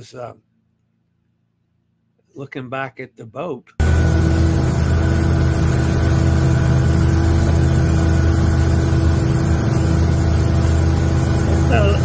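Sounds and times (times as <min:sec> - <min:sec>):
outboard motor running: 0:03.8 - 0:12.0.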